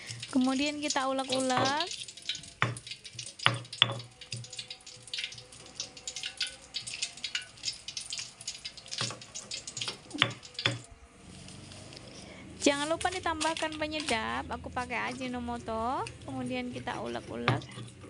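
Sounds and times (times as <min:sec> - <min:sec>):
pestle squishing in mortar: 0:16.9 - 0:18.0.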